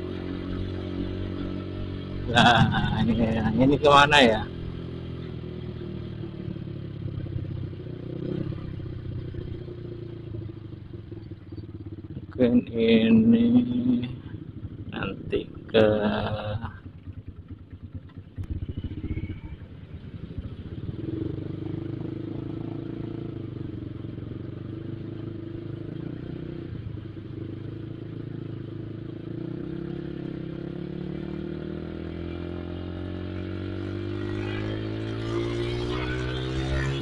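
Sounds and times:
motorcycle engine: 0.0 - 37.0.

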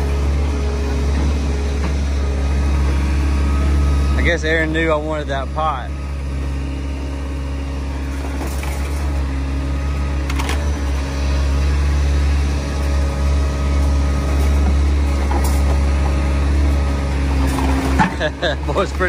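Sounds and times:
excavator diesel engine running: 0.0 - 19.0.

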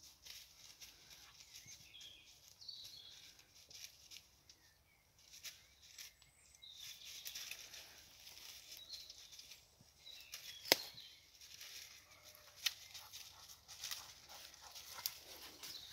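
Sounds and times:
dry leaves rustling: 0.0 - 15.9
twigs cracking: 3.2 - 15.9
sharp twig snap: 10.4 - 11.0.

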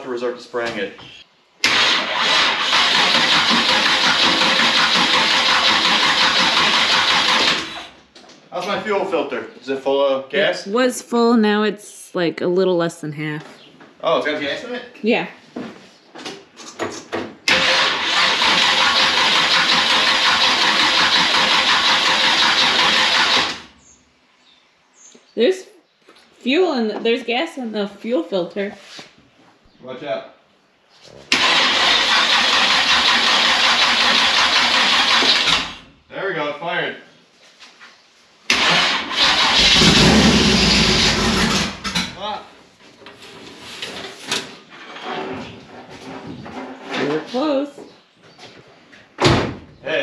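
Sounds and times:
starter cranking engine: 1.6 - 8.0, 17.5 - 23.8, 31.3 - 35.9, 38.5 - 41.9.

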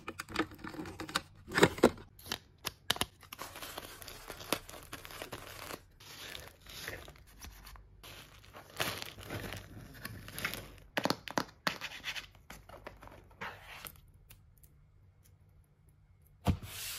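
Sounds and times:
paper rustling and crinkling: 0.3 - 10.8.

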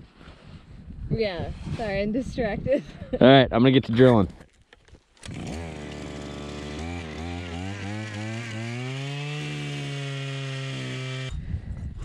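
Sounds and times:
ice auger engine drilling: 5.2 - 11.4.

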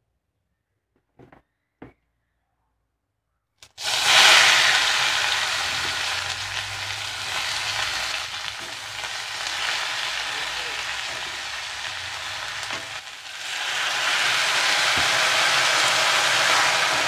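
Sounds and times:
faint knocks: 1.0 - 2.0
leaves sizzling in hot oil: 3.7 - 17.0.

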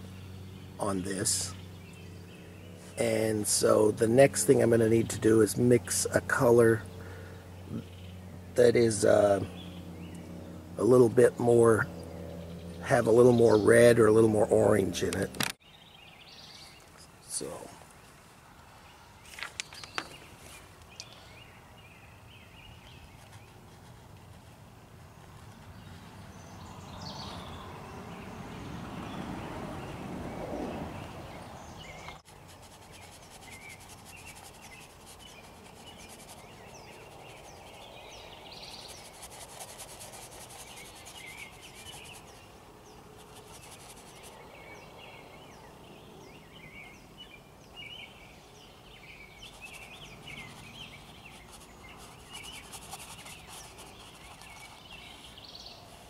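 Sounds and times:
birds chirping: 0.0 - 24.4, 25.0 - 56.0
insects buzzing: 32.1 - 45.1, 49.2 - 55.7.

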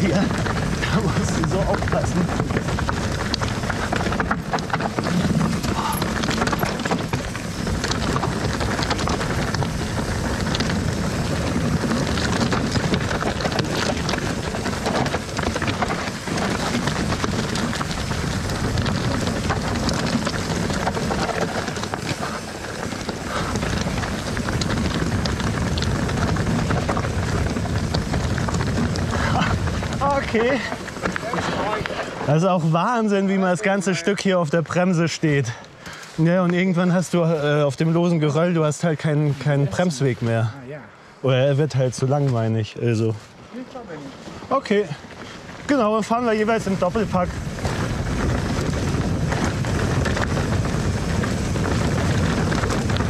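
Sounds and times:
wind noise on microphone: 0.0 - 32.4, 44.3 - 53.0
bike rattling and clicking: 0.0 - 40.5, 41.5 - 53.0
tyres crunching over rock: 0.0 - 40.5, 41.6 - 53.0.

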